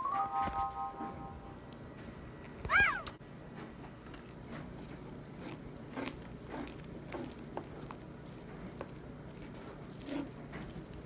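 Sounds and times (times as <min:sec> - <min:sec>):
wet squishing of stirred corn: 0:03.8 - 0:11.0.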